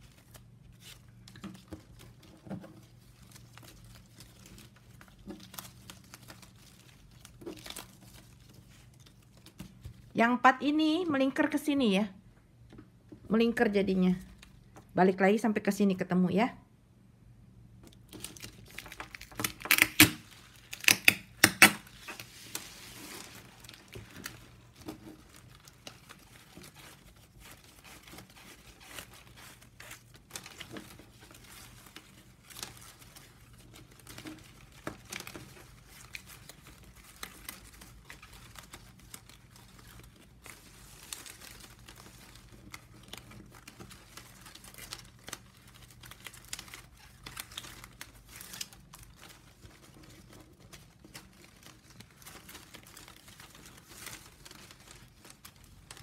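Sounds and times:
plastic strips crinkling: 0:00.0 - 0:11.8, 0:17.8 - 0:56.0
sharp plastic snaps and clicks: 0:19.1 - 0:20.2, 0:20.8 - 0:21.9.

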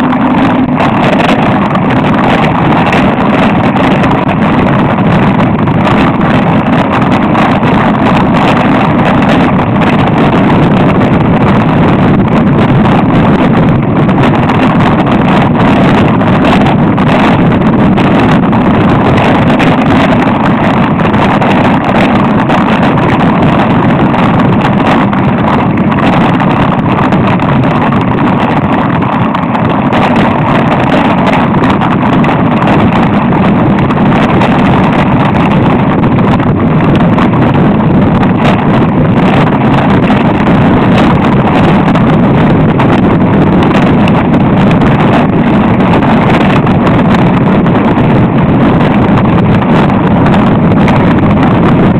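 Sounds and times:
bike rattling: 0:00.0 - 0:51.9
wind buffeting microphone: 0:00.0 - 0:51.9.

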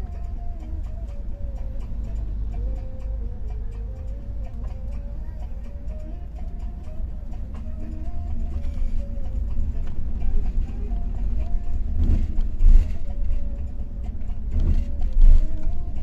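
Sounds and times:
moving bus rumble: 0:00.0 - 0:16.0
bus bumps: 0:07.4 - 0:16.0.

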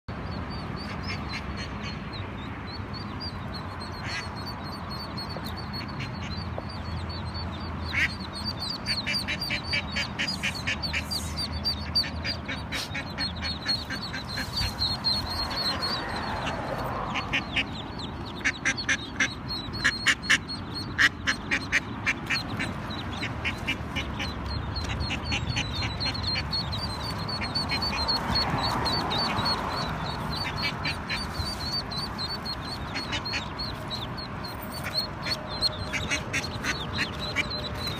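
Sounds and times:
ducklings peeping: 0:00.1 - 0:37.9
duck quacking: 0:07.9 - 0:34.0, 0:34.8 - 0:37.6.

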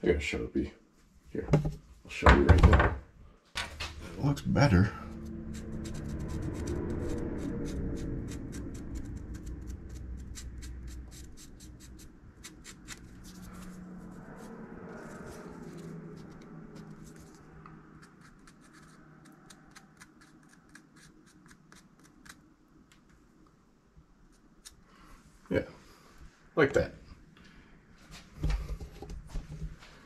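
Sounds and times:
marker scratching on metal: 0:05.0 - 0:17.4.

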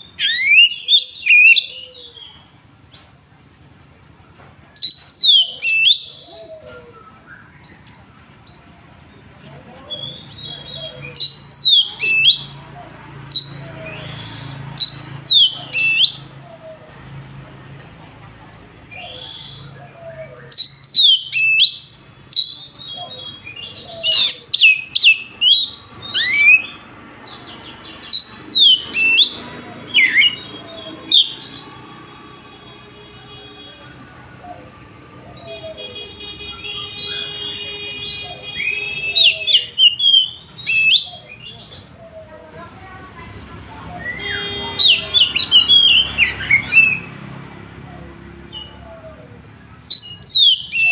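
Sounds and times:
bird whistling sharp notes: 0:04.8 - 0:07.8, 0:10.0 - 0:12.6, 0:13.3 - 0:16.3, 0:20.5 - 0:26.7, 0:28.0 - 0:31.6, 0:38.6 - 0:41.3, 0:49.8 - 0:50.9.

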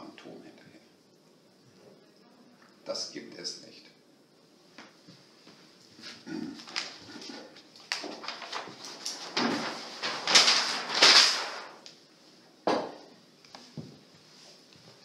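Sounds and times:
paper sheet rustling and crackling: 0:06.6 - 0:12.0.

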